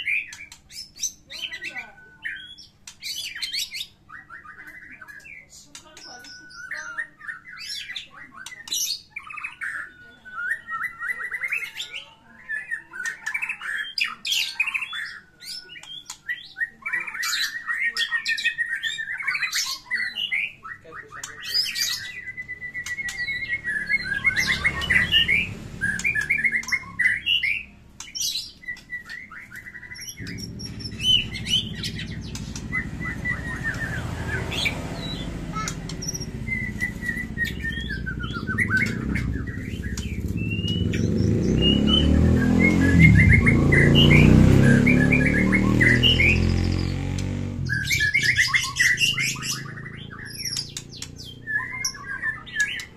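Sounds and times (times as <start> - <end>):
songbird whistling and chattering: 0.0 - 52.9
low rumble: 30.1 - 44.3.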